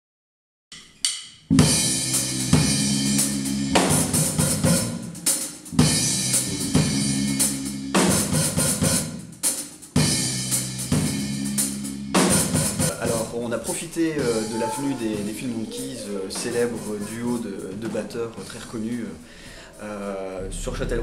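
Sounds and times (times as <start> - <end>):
electric bass guitar: 1.5 - 4.9, 5.8 - 8.2
cymbal crashes: 1.5 - 13.0
drum kit playing rock groove: 1.5 - 18.0.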